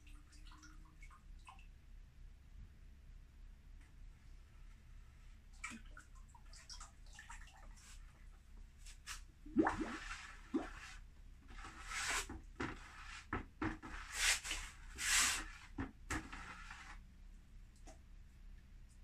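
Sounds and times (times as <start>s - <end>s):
glaze swishing: 9.8s - 15.7s.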